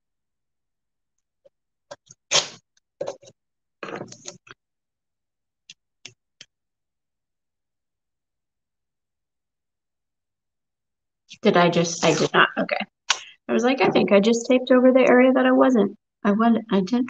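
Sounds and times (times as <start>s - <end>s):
masking tape ripping: 2.3s - 2.6s.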